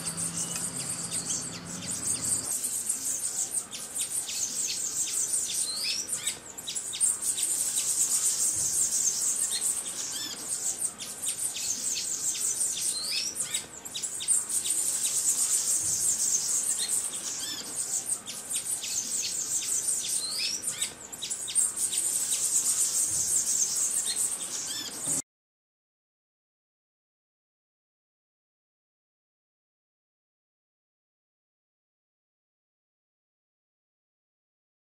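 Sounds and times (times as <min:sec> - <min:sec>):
bird chirps: 0:00.0 - 0:25.2.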